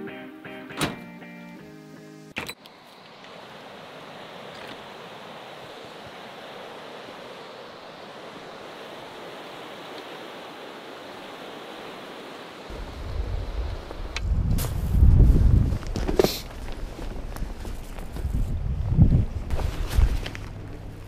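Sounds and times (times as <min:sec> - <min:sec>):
river rushing over rapids: 0:03.1 - 0:13.0.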